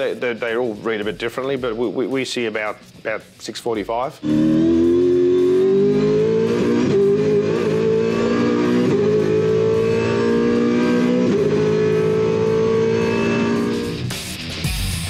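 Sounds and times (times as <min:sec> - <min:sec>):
race car engine at full throttle: 0:04.2 - 0:14.4.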